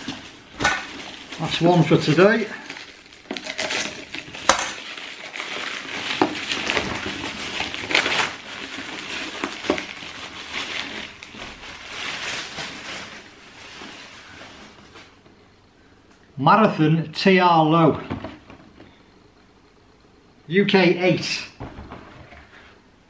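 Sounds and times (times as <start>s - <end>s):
plastic bag tearing and crinkling: 0.0s - 14.5s.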